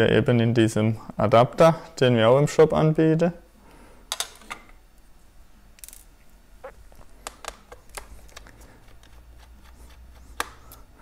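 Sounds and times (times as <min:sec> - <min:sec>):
screwdriver clicking and scraping: 0:07.9 - 0:10.5.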